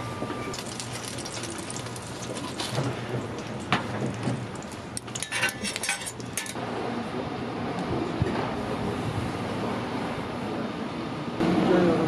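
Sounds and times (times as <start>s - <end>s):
metal tongs clinking on griddle: 5.0s - 6.6s.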